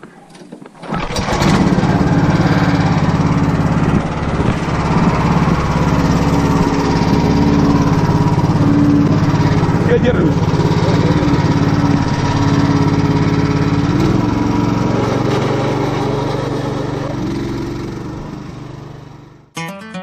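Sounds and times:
small engine running: 0.9 - 19.5
acoustic guitar music: 19.5 - 20.0.

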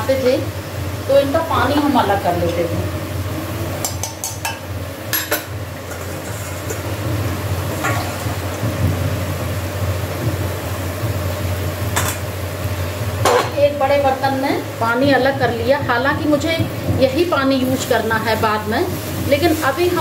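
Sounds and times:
steel kitchenware clinking: 3.8 - 6.9.

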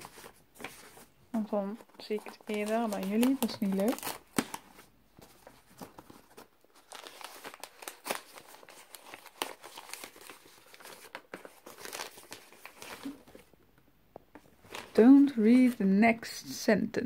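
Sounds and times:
wrapping paper tearing and crinkling: 0.0 - 13.5, 14.6 - 15.9.

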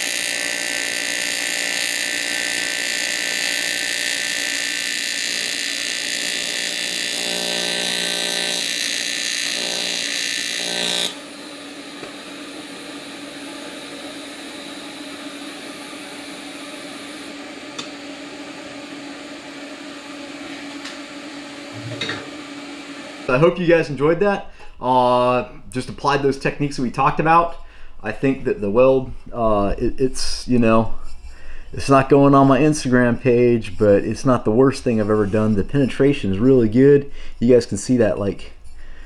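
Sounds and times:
welding arc buzzing: 0.0 - 23.5
steady hum: 0.0 - 39.0.

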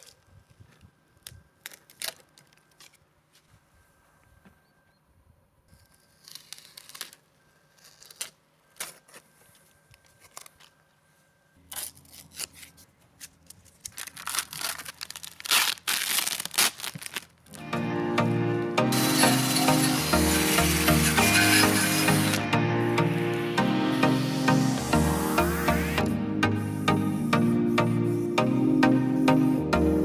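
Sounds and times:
masking tape tearing: 1.2 - 3.0, 5.8 - 9.2, 11.6 - 17.6, 19.0 - 22.4
loud steady buzz: 17.5 - 30.0.

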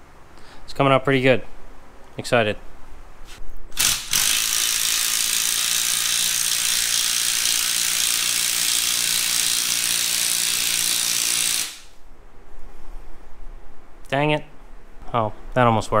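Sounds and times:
power tool running: 3.8 - 11.9.

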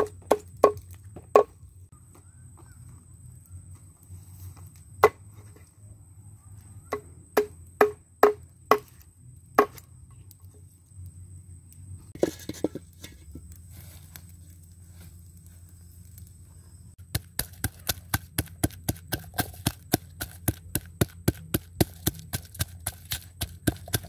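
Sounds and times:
knife chopping on wooden board: 17.1 - 24.0.

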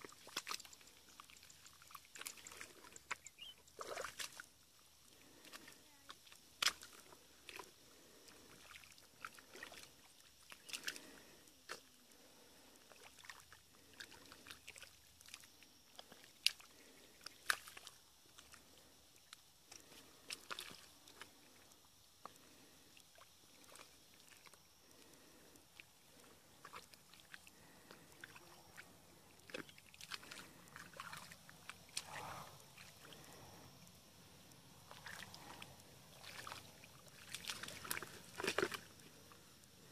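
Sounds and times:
wet splats and splashes: 0.0 - 4.5, 6.5 - 7.6, 12.9 - 18.6, 19.7 - 21.3, 29.4 - 32.2, 34.9 - 35.6, 36.2 - 38.9
squelching in mud and water: 0.0 - 39.9.

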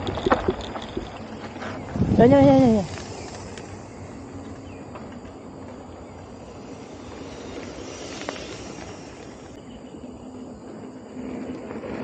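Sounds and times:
bike rolling on dirt track: 0.0 - 12.0.

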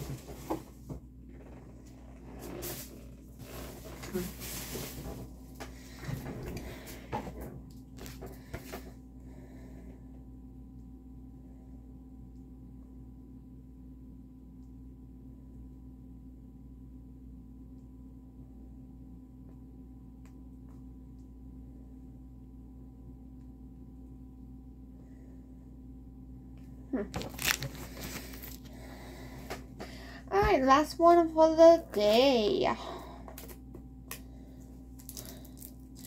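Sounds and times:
room tone hum: 0.0 - 36.0
paper rustle: 27.1 - 28.7.

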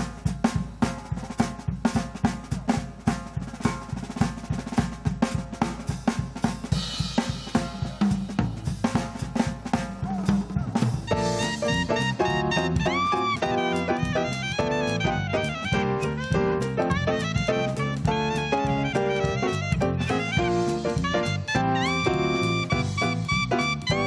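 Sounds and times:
fast drum kit playing: 0.0 - 24.0
electric bass line: 11.1 - 24.0
held melody notes: 11.1 - 24.0.

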